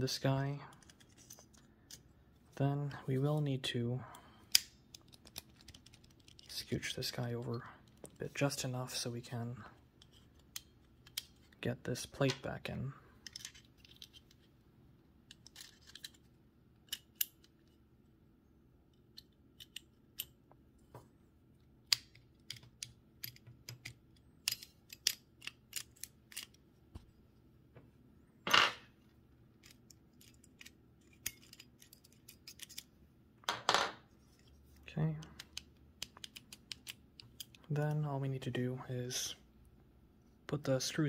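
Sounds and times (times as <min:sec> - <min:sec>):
small steel parts clicking: 0:04.5 - 0:06.5, 0:10.0 - 0:11.4, 0:13.2 - 0:14.4, 0:15.3 - 0:17.8, 0:18.9 - 0:20.4, 0:21.9 - 0:26.6, 0:29.6 - 0:32.9, 0:35.3 - 0:37.7.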